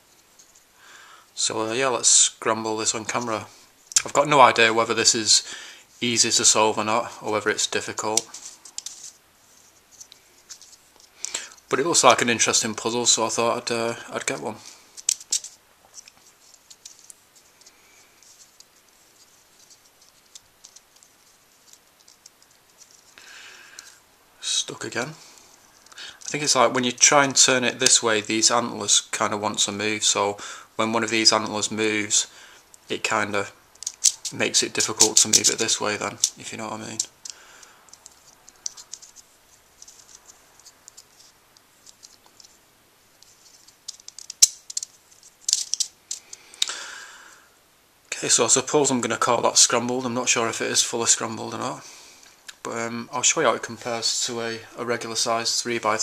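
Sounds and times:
plastic puzzle pieces clicking: 0:08.2 - 0:09.1, 0:15.0 - 0:18.7, 0:19.6 - 0:23.2, 0:33.8 - 0:39.2, 0:39.8 - 0:42.6, 0:43.2 - 0:46.7.

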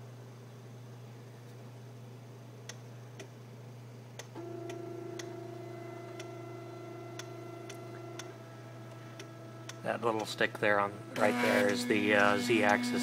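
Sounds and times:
low steady hum: 0:00.0 - 0:13.0
stepper motor whine: 0:10.8 - 0:13.0.

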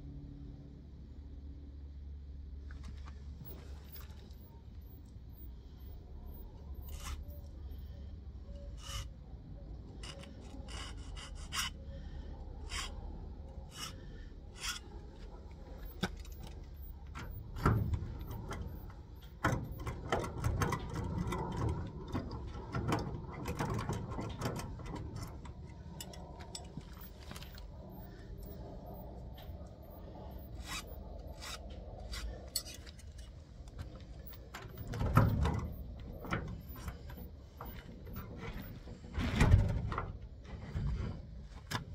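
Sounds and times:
metal rubbing and scraping: 0:03.4 - 0:41.7
file on metal: 0:06.3 - 0:07.8, 0:08.6 - 0:09.2, 0:10.0 - 0:11.9, 0:12.6 - 0:13.0, 0:13.6 - 0:15.0, 0:27.9 - 0:32.9.

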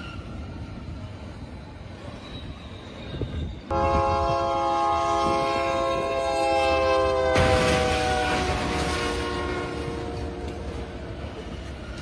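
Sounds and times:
freight train rumbling: 0:00.0 - 0:12.0
locomotive air horn chord: 0:03.7 - 0:10.7.

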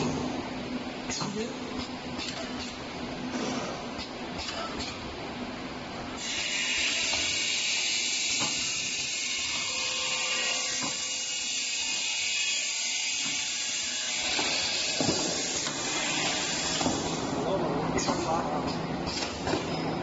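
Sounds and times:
machine high hiss: 0:06.2 - 0:17.5.

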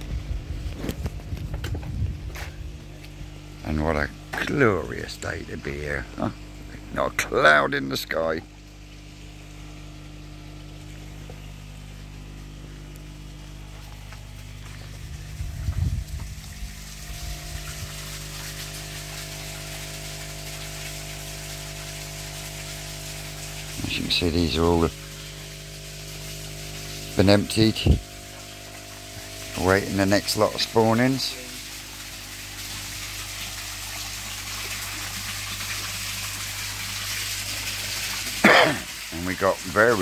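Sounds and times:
pond pump humming: 0:00.0 - 0:40.0
water hissing: 0:08.8 - 0:40.0.

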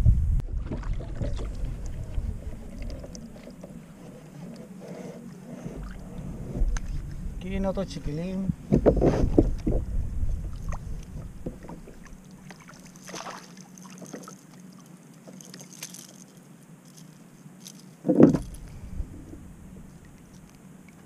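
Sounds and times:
dull thump: 0:08.7 - 0:09.8, 0:18.0 - 0:18.6
water splash: 0:11.6 - 0:14.5.

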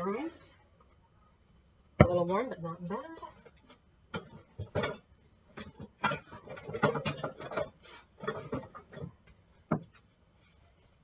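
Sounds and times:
kitchen utensils knocking and clinking: 0:04.1 - 0:09.9.

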